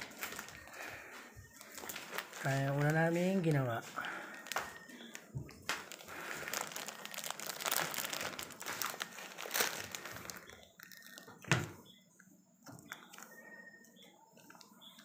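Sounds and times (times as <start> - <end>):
crinkling rustling: 0.0 - 11.4.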